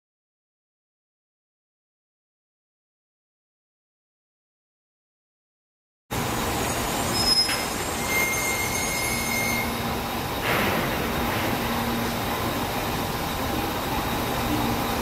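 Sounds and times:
train rumble: 0:06.1 - 0:15.0
steel wheels squealing on curves: 0:07.0 - 0:09.9.

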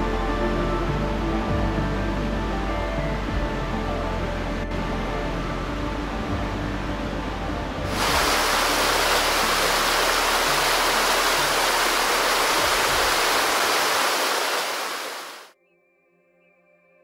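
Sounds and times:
stream running over rocks: 0:07.9 - 0:15.5
waterfall pouring into pool: 0:07.9 - 0:15.5.

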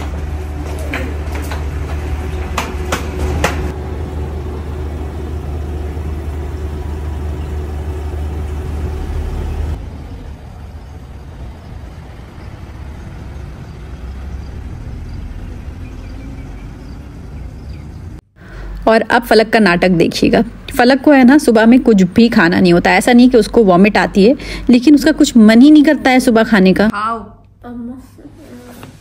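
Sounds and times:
vehicle engine idling: 0:00.0 - 0:18.2
street noise: 0:00.0 - 0:26.9.

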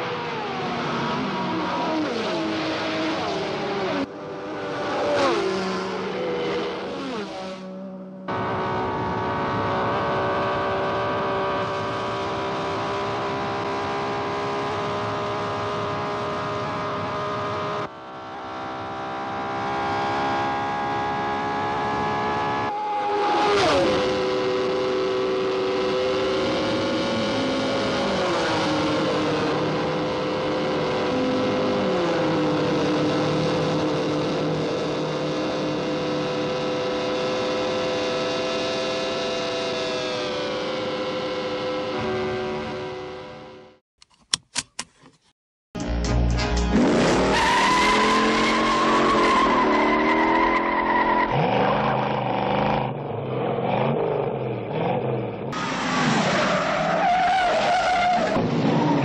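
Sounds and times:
racing cars passing by: 0:00.0 - 0:12.0
racing car engines at high revs: 0:00.0 - 0:43.8, 0:46.7 - 0:59.0.

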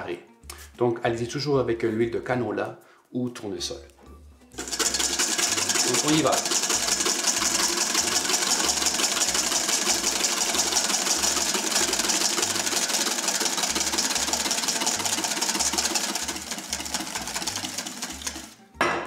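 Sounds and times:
whisk beating in metal bowl: 0:04.6 - 0:18.6.

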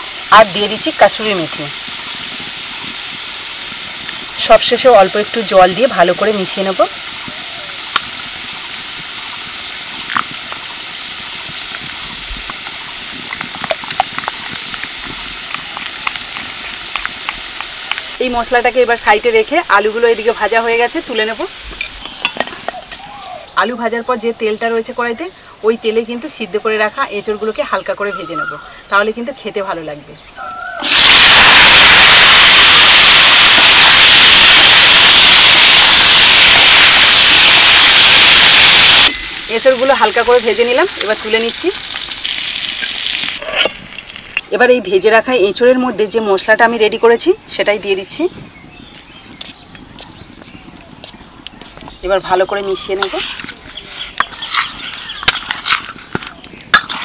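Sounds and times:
potatoes sizzling in oil: 0:00.0 - 0:23.0, 0:30.8 - 0:48.1.

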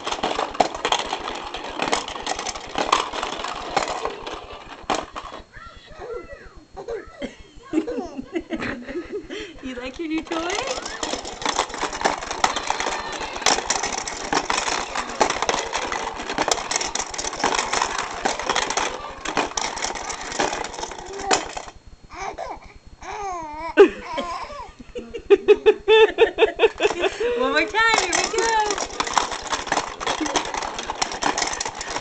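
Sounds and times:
toy rattling and clattering: 0:00.0 - 0:05.7, 0:09.6 - 0:22.3, 0:26.6 - 0:32.0.

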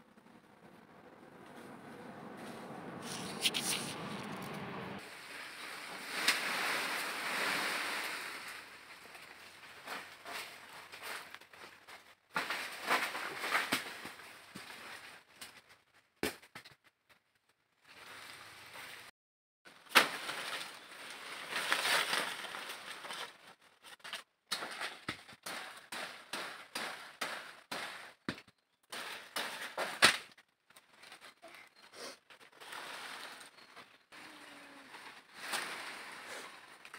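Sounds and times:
branches and leaves rustling: 0:01.4 - 0:16.0, 0:17.8 - 0:19.1, 0:19.7 - 0:36.9
branches snapping: 0:03.0 - 0:04.4, 0:19.8 - 0:31.1.

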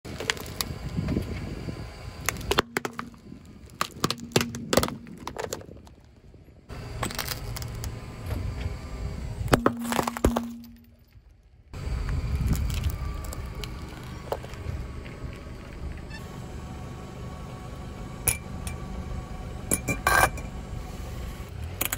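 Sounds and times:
plastic pipe cracking under tyre: 0:02.2 - 0:06.1
glass bottles shattering: 0:09.6 - 0:11.1.

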